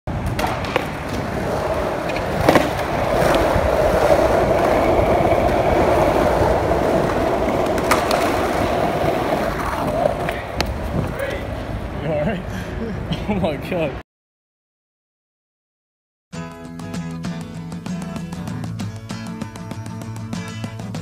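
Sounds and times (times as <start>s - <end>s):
skateboard clacks: 0.1s - 11.8s, 17.3s - 21.0s
skateboard wheels rolling on concrete: 0.1s - 14.0s, 16.7s - 21.0s.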